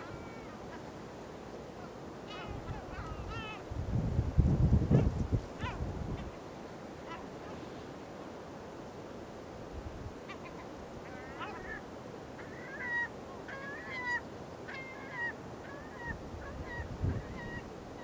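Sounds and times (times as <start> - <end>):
gulls calling: 0.0 - 1.0, 1.7 - 3.7, 10.3 - 18.0
wind rumble on microphone: 2.5 - 6.4, 16.0 - 18.0.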